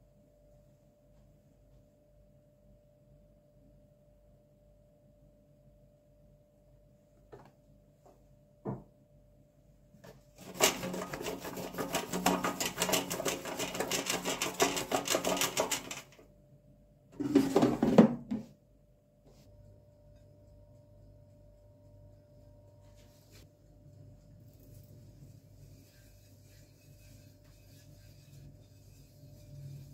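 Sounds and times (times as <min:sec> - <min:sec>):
air fryer basket clattering: 0:10.4 - 0:16.2
potato wedges rattling in basket: 0:10.4 - 0:16.2.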